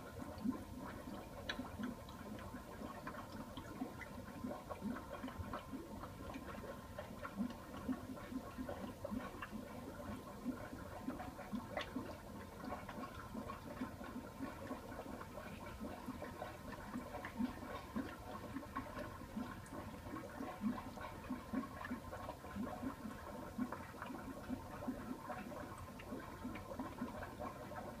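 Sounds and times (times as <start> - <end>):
aquarium water bubbling: 0.0 - 28.0.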